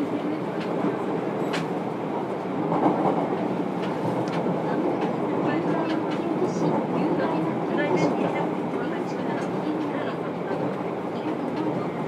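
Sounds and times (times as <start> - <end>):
train running noise: 0.0 - 12.0.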